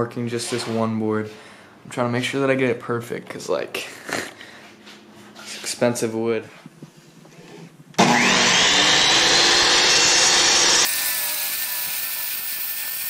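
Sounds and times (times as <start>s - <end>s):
table saw ripping wood: 8.0s - 13.0s.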